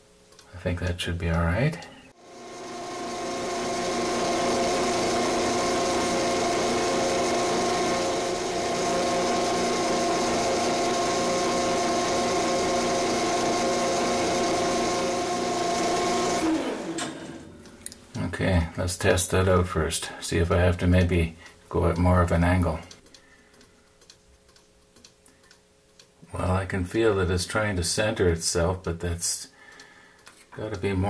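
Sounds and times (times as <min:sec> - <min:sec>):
metal lathe motor whining: 0:02.2 - 0:17.6.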